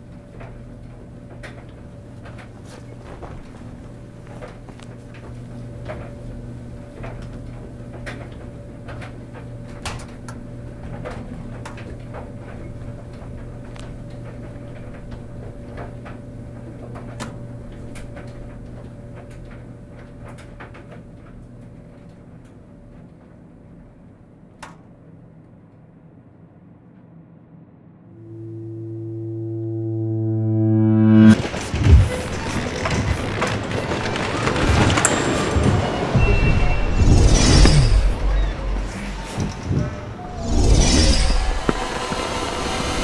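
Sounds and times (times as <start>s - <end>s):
machine hum: 26.5s - 43.0s.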